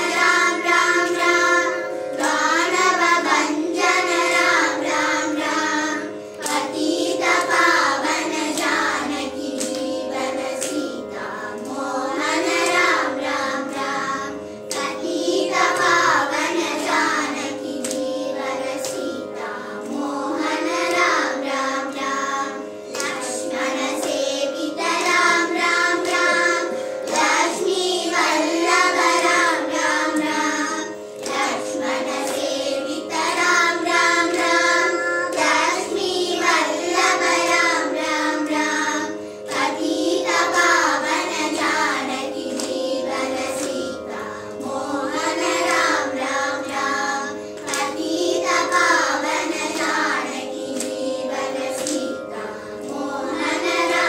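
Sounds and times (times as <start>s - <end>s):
children singing in unison: 0.0s - 54.0s
steady drone note: 0.0s - 54.0s.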